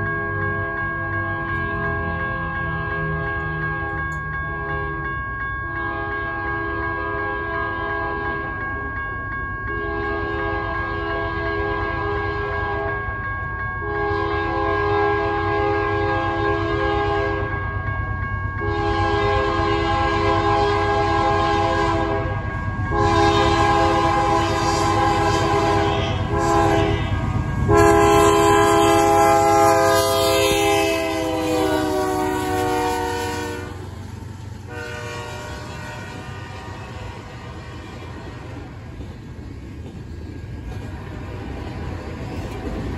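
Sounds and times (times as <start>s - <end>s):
freight train rumbling by: 0.0s - 42.9s
locomotive air horn blasts: 5.8s - 8.4s, 9.8s - 13.0s, 13.9s - 17.5s, 18.6s - 33.8s, 34.7s - 38.5s.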